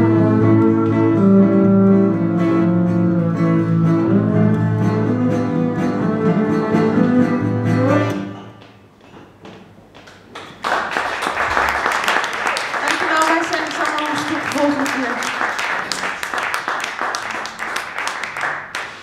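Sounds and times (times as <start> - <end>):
bowed double bass: 0.0 - 8.5
acoustic guitar: 0.0 - 8.7
applause: 10.0 - 19.0.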